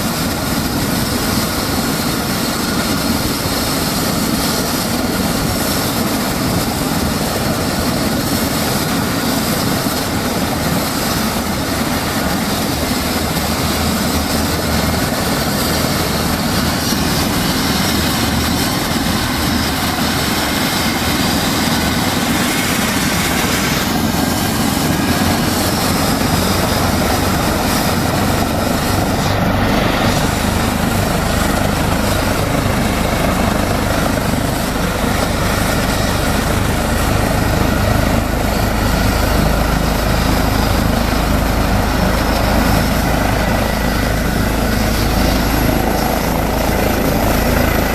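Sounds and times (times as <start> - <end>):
helicopter turbines and rotors running: 0.0 - 47.9.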